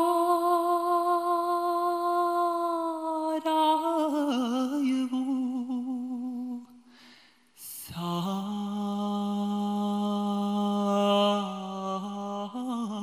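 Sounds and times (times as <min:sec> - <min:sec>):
man singing without words: 0:00.0 - 0:06.8, 0:07.6 - 0:13.0.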